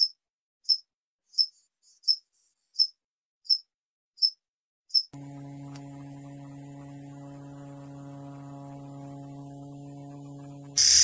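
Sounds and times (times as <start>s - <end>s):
low steady hum: 5.2s - 10.8s
katydid high-pitched buzz: 5.2s - 11.0s
lower-pitched insect call: 5.2s - 11.0s.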